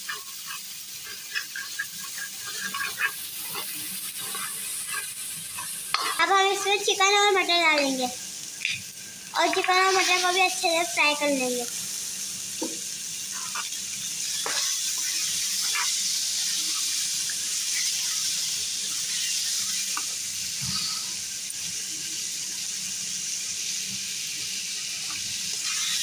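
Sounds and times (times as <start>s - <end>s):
metal ladle scraping pan: 0.0s - 6.2s
food sizzling in hot oil: 0.0s - 26.0s.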